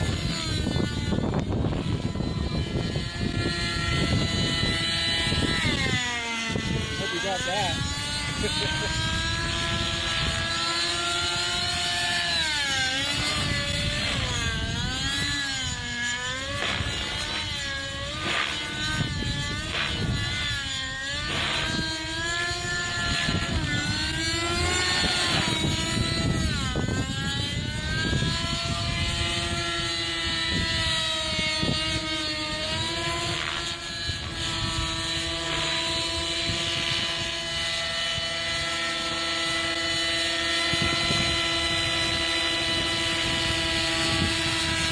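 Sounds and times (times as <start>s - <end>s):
rc helicopter engine and rotors: 0.0s - 44.9s.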